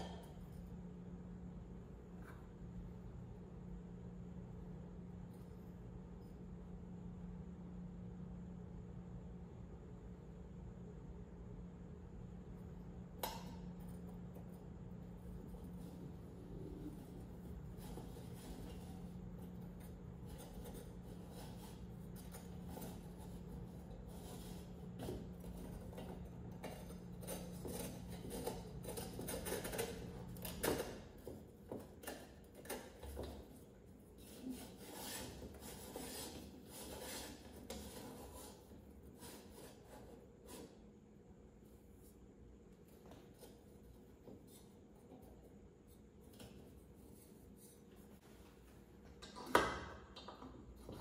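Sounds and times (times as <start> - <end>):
steady low hum: 0.0 - 51.0
rubbing and scraping metal parts: 15.7 - 40.8.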